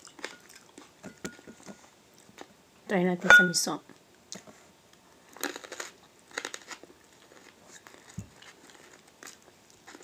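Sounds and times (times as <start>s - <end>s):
person chewing crunchy food: 0.0s - 2.5s, 5.3s - 10.0s.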